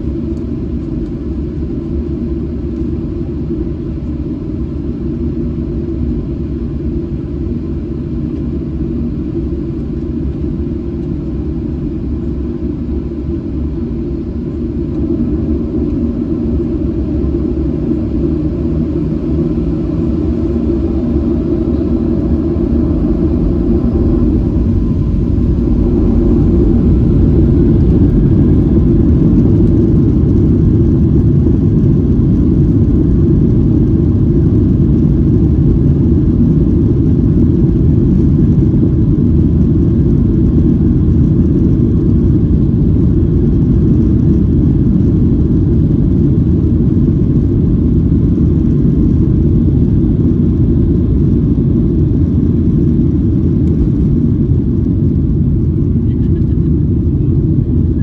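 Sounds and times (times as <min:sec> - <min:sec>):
jet engine rumble in cabin: 0:00.0 - 0:58.0.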